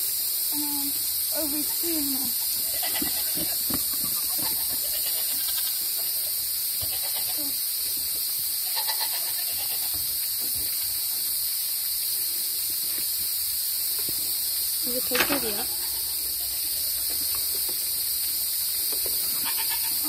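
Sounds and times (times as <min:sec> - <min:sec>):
night insects chorus: 0:00.0 - 0:20.0
goat bleating: 0:02.5 - 0:03.6, 0:04.2 - 0:05.9, 0:06.8 - 0:07.6, 0:08.6 - 0:10.0, 0:19.3 - 0:20.0.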